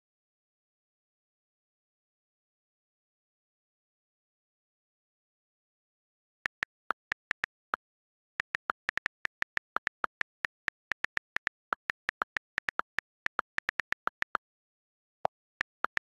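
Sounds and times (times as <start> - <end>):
on-screen keyboard clicks: 6.5 - 14.4, 15.2 - 16.0.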